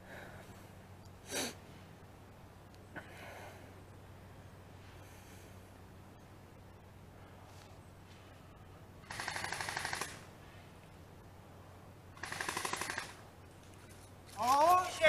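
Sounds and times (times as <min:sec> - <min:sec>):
airsoft gun full-auto bursts: 0:09.0 - 0:10.3, 0:12.1 - 0:13.2.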